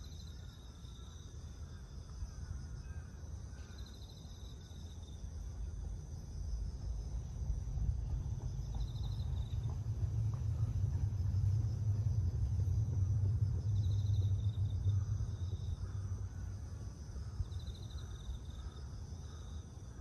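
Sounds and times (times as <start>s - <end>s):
insects trilling: 0.0s - 20.0s
low rumble: 6.5s - 17.5s.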